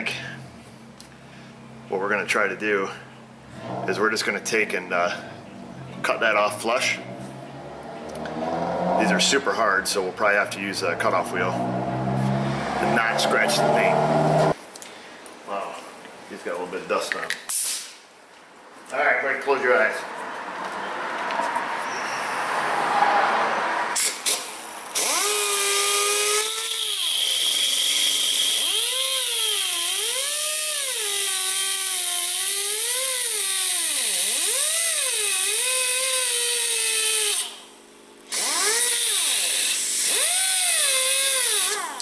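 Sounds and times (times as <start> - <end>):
cutoff wheel grinding steel: 3.4 - 14.6, 24.0 - 37.7, 38.3 - 42.0.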